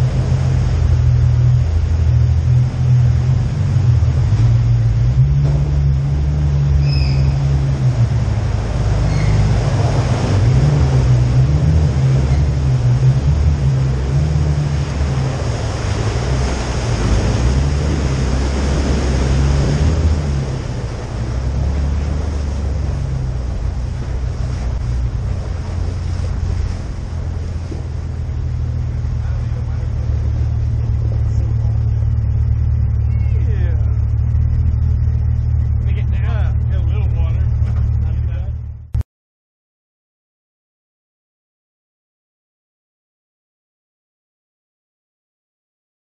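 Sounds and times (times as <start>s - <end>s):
engine running low drone: 0.0s - 39.0s
tyres hissing through water: 5.6s - 34.0s.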